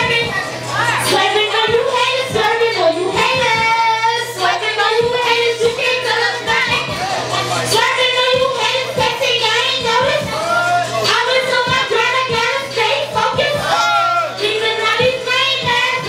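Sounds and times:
bass line: 0:00.0 - 0:16.0
woman rapping over a beat: 0:00.0 - 0:16.0
kick drum: 0:06.5 - 0:07.2, 0:09.8 - 0:10.8, 0:13.2 - 0:14.3.

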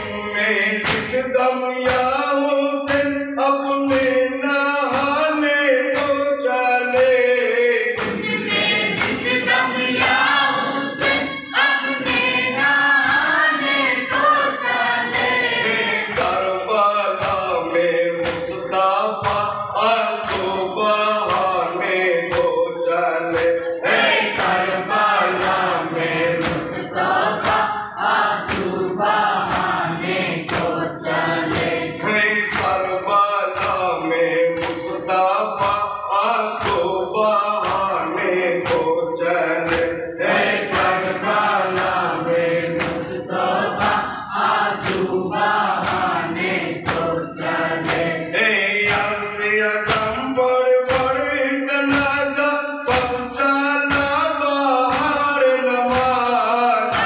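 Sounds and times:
hand strikes beating time: 0:00.0 - 0:57.0
men chanting together: 0:00.0 - 0:57.0.

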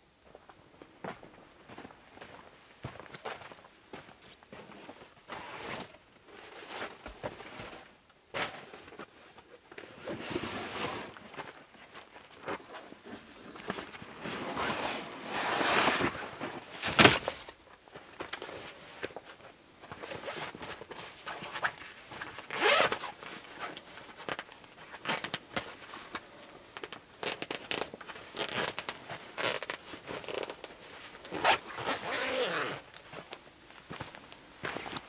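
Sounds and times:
canvas bag rustling: 0:20.1 - 0:23.7, 0:31.3 - 0:32.8
zip being pulled open: 0:22.5 - 0:23.1, 0:31.3 - 0:32.8.

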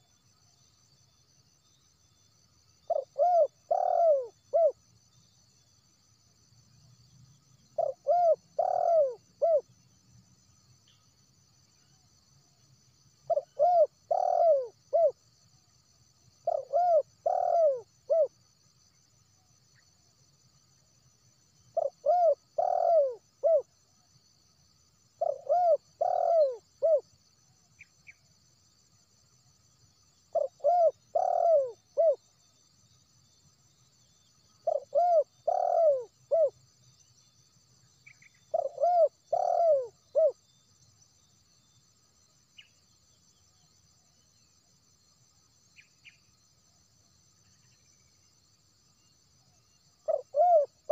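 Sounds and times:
high insect drone: 0:00.0 - 0:50.9
dove cooing: 0:02.9 - 0:04.8, 0:07.8 - 0:09.6, 0:13.3 - 0:15.2, 0:16.4 - 0:18.3, 0:21.8 - 0:23.7, 0:25.2 - 0:27.0, 0:30.3 - 0:32.2, 0:34.6 - 0:36.6, 0:38.5 - 0:40.4, 0:50.0 - 0:50.9.

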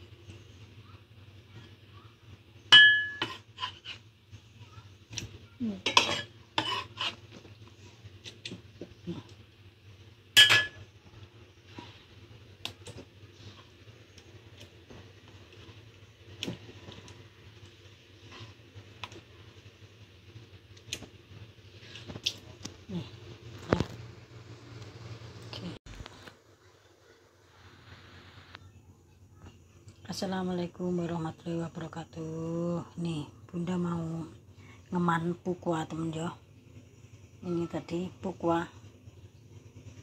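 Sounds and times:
metallic clinks against pot: 0:02.8 - 0:03.4, 0:10.4 - 0:10.8.

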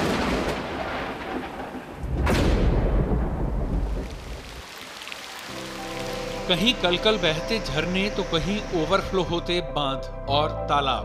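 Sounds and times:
thunder cracking and rumbling: 0:00.0 - 0:04.8.

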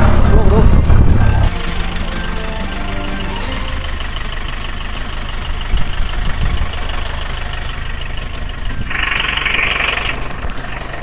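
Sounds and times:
low thumps: 0:00.0 - 0:01.6
vehicle engine running: 0:00.0 - 0:11.0.

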